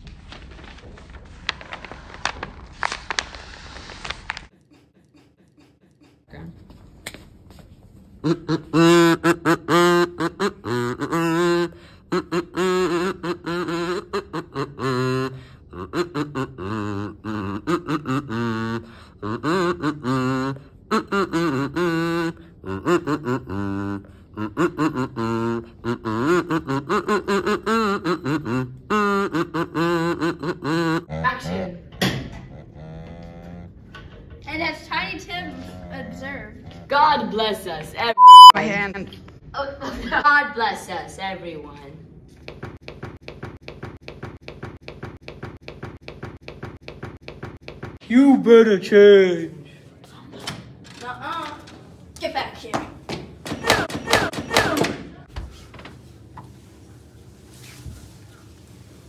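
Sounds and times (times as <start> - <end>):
kazoo playing a tune: 8.2 - 31.2.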